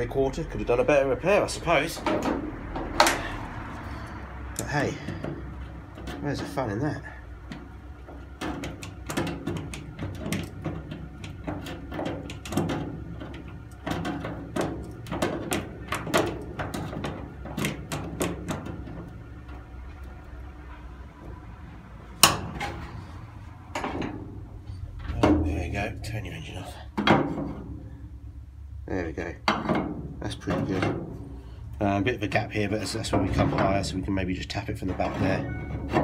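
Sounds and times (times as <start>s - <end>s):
clicks and knocks from metal panel: 1.7s - 3.6s, 4.5s - 6.6s, 7.4s - 20.1s, 22.2s - 23.1s, 23.7s - 26.0s, 26.9s - 27.9s, 29.4s - 31.4s, 32.8s - 34.0s, 34.8s - 36.0s.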